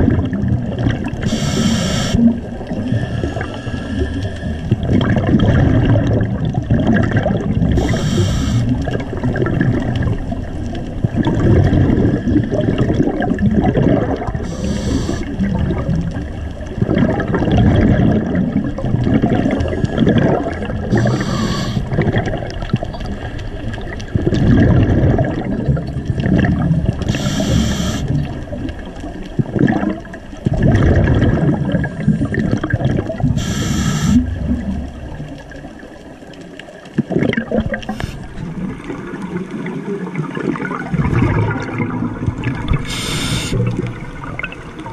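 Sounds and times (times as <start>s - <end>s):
bubbling exhale: 0.0s - 10.2s, 11.0s - 28.5s, 29.4s - 34.9s, 37.0s - 39.4s, 40.0s - 44.9s
diver inhaling through regulator: 1.2s - 2.2s, 2.8s - 4.8s, 7.7s - 8.9s, 14.4s - 15.4s, 19.6s - 22.0s, 27.0s - 28.2s, 33.3s - 34.4s, 37.8s - 38.4s, 42.7s - 43.7s.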